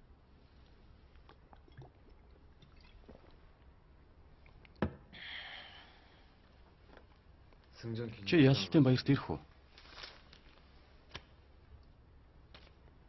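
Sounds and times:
person swallowing: 0:01.5 - 0:02.2
breathy hiss: 0:05.1 - 0:06.4.

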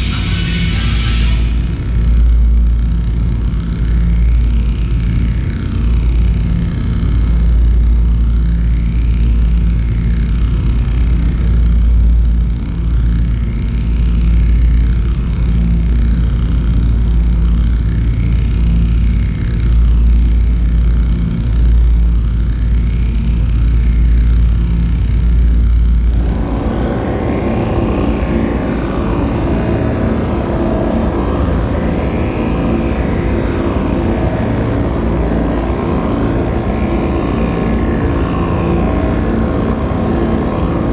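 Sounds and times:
deep rumble: 0:00.0 - 0:40.9
electronic ambient drone: 0:00.0 - 0:40.9.

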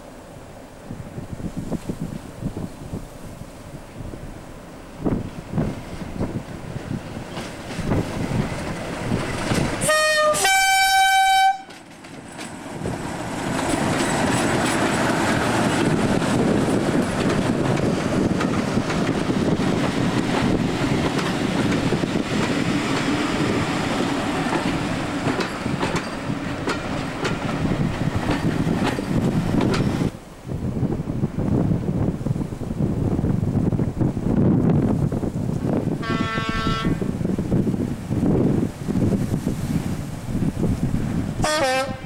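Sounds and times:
two-tone locomotive horn: 0:09.8 - 0:11.8, 0:36.0 - 0:37.1, 0:41.4 - 0:42.0.

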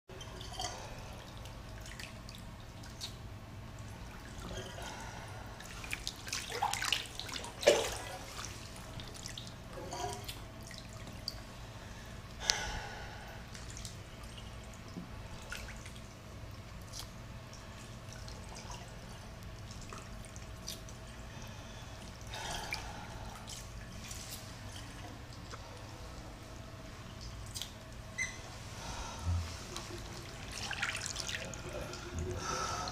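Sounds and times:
bathwater sloshing and dripping: 0:00.1 - 0:32.9
steady low hum: 0:00.1 - 0:32.9
water splashes: 0:03.8 - 0:11.4, 0:28.8 - 0:32.9.

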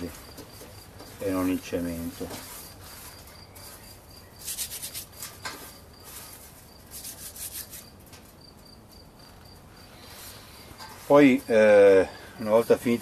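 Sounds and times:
seed pods rubbed between palms: 0:01.1 - 0:07.9.

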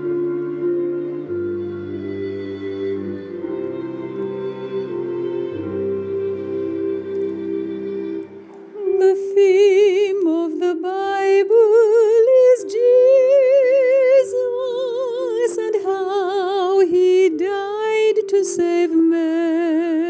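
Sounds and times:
held chord: 0:00.0 - 0:19.3
woman singing with vibrato: 0:08.7 - 0:20.0.

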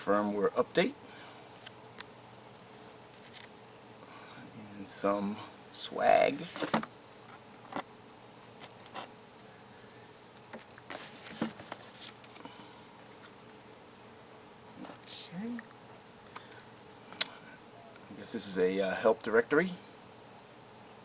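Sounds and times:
insects chirping: 0:00.0 - 0:21.0
cardboard and paper rustling: 0:10.9 - 0:12.4.

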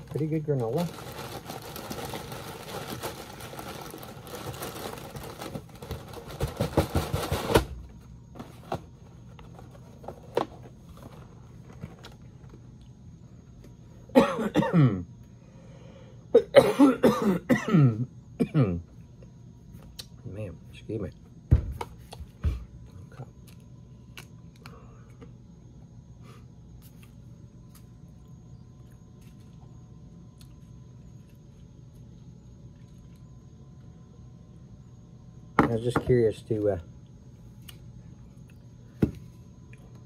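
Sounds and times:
plastic bag rustling: 0:00.0 - 0:07.6
man coughing: 0:14.1 - 0:15.1, 0:16.3 - 0:18.8.

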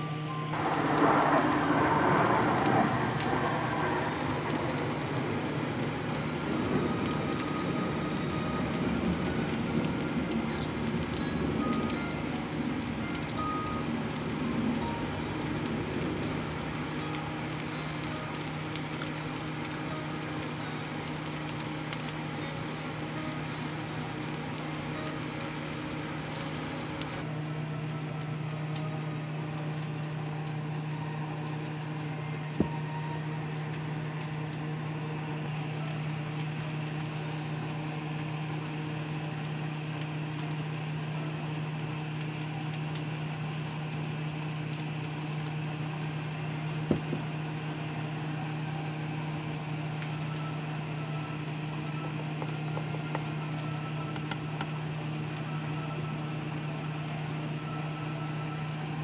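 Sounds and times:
low machine hum: 0:00.0 - 0:59.0.

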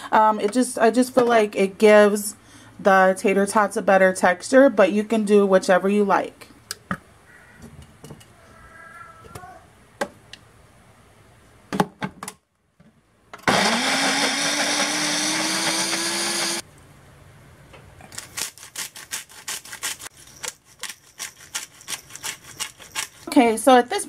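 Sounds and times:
food processor motor spinning: 0:13.4 - 0:16.6
salt shaker and pepper grinder rattling: 0:18.1 - 0:23.8.

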